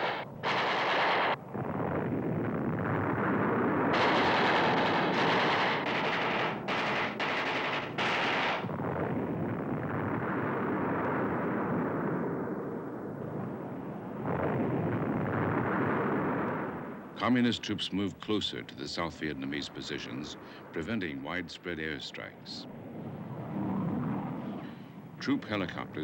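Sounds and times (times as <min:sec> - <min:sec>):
heavy gunfire: 0:00.0 - 0:01.5, 0:03.3 - 0:09.2
explosions: 0:00.0 - 0:17.9.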